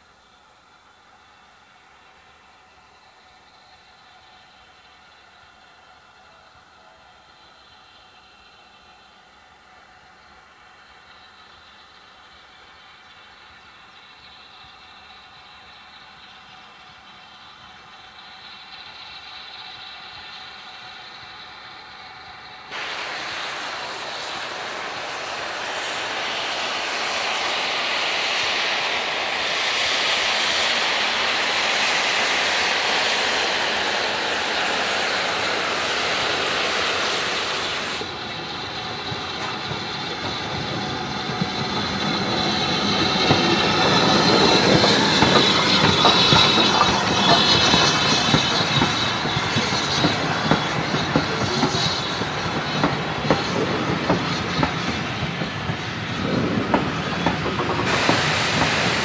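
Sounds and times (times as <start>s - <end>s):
steam hissing: 0.0s - 59.0s
train wheels clacking over rail joints: 16.1s - 59.0s
wheels squealing: 23.5s - 58.7s.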